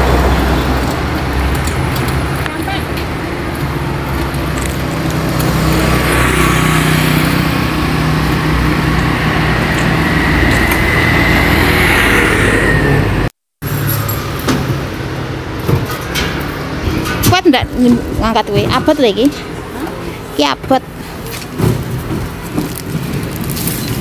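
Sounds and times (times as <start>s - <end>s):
motor vehicle humming: 0.0s - 24.0s.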